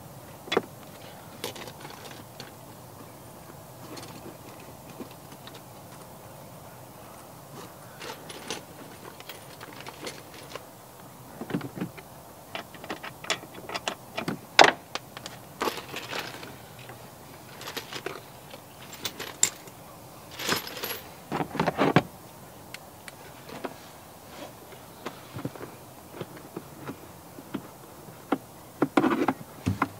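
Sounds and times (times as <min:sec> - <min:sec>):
small parts clicking and rattling: 0:00.5 - 0:02.6, 0:08.0 - 0:10.7, 0:11.6 - 0:21.1.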